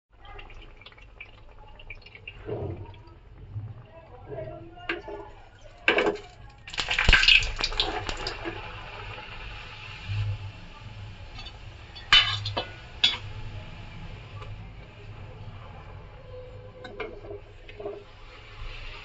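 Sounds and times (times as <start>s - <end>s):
deep-frying in hot oil sizzling: 0.1s - 2.4s, 4.9s - 19.0s
oil spattering and metal clatter: 4.9s - 8.6s, 11.3s - 13.3s.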